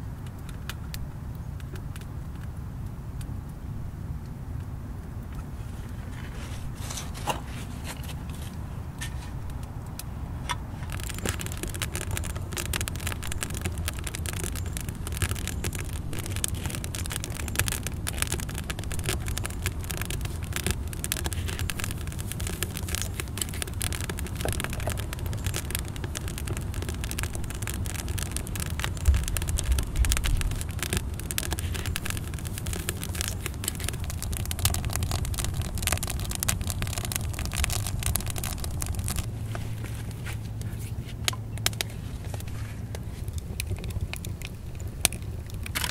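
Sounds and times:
small crackles and clicks: 0:00.0 - 0:45.9
wind rumble on microphone: 0:00.0 - 0:45.9.

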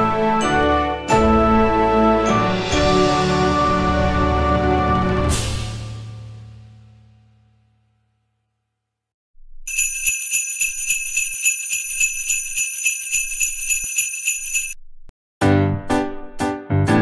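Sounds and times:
jingle bells shaking: 0:09.7 - 0:14.8.

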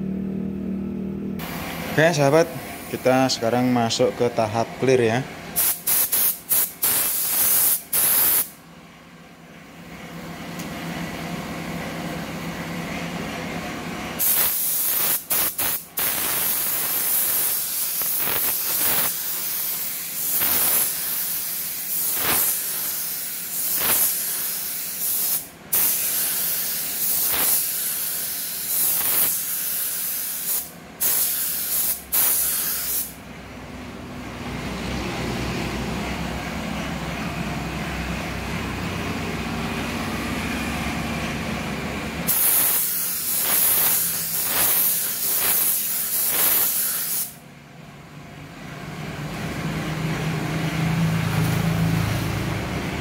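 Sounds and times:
spray gun hissing: 0:05.6 - 0:08.6, 0:14.2 - 0:33.2, 0:42.3 - 0:47.4.

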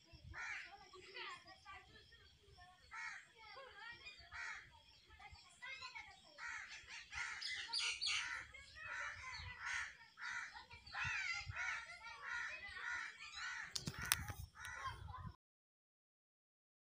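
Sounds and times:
crows cawing: 0:00.4 - 0:00.7, 0:02.9 - 0:03.3, 0:04.3 - 0:04.7, 0:06.4 - 0:15.0
sharp clicks: 0:13.7 - 0:14.8.

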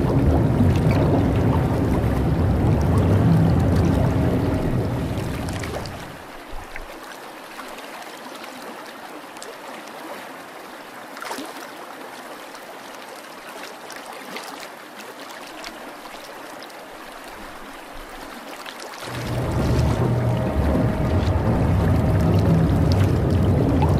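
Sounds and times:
water trickling: 0:00.0 - 0:07.9, 0:15.3 - 0:23.9.

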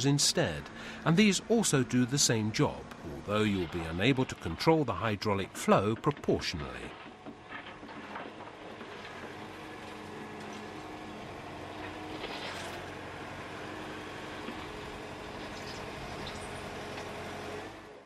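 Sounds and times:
excavator diesel engine and hydraulics: 0:00.0 - 0:18.0
bucket grading gravel: 0:00.5 - 0:11.2, 0:11.8 - 0:13.0.

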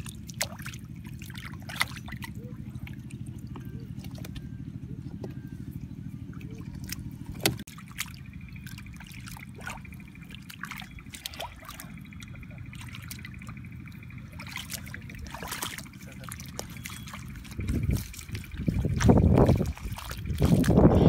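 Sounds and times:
hands splashing in muddy water: 0:00.0 - 0:04.6, 0:06.4 - 0:21.0
low rumble: 0:00.0 - 0:21.0.

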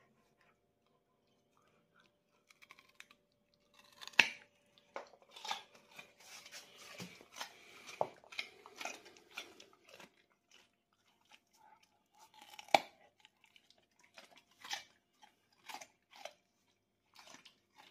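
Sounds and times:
dog crunching carrot: 0:00.1 - 0:17.9
carrot cracking: 0:02.4 - 0:11.3, 0:12.2 - 0:16.4.

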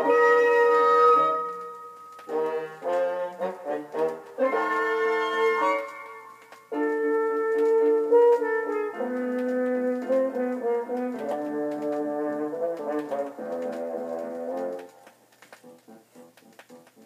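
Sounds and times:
brass section playing chords: 0:02.3 - 0:14.8
vinyl surface clicks: 0:05.8 - 0:17.0.

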